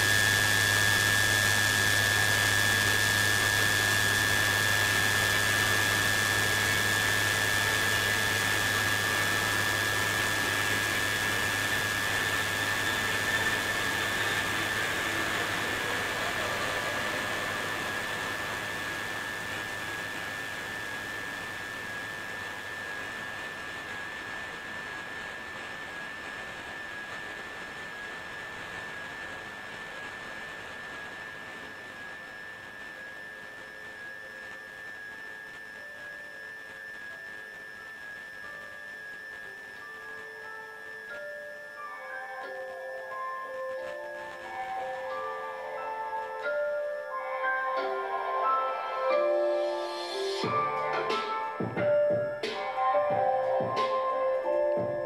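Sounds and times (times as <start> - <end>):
loud rushing hiss: 0.0 - 23.8, 48.8 - 54.7
low hum: 0.0 - 34.6
high-pitched whine: 0.0 - 55.0.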